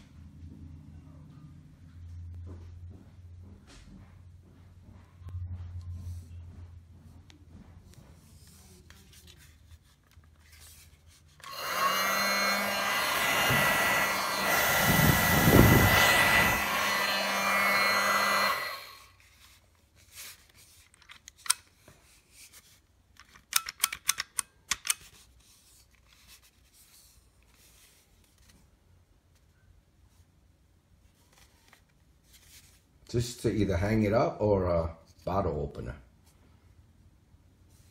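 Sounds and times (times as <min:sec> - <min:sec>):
electric blower fan running: 0:11.4 - 0:19.1.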